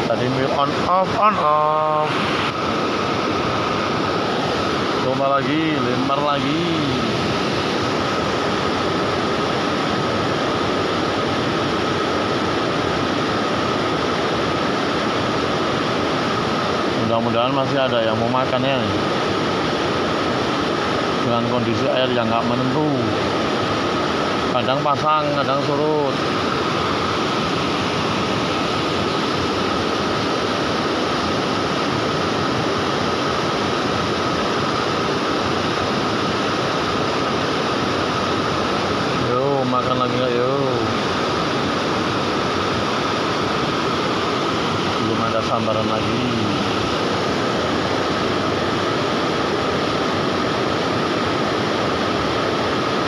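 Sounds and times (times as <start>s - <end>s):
river water pouring over a weir: 0.0s - 53.0s
steady high tone: 0.4s - 2.5s.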